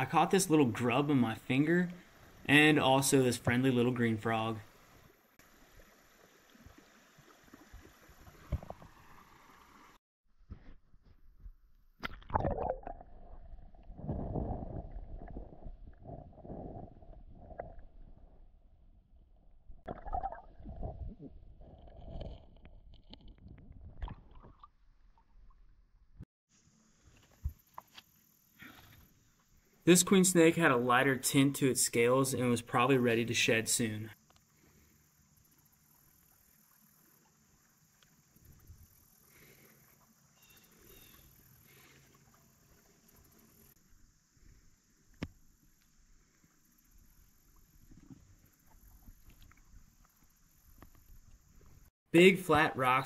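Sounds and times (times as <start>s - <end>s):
muffled underwater creek rumbling: 0.0s - 10.0s, 12.2s - 26.2s.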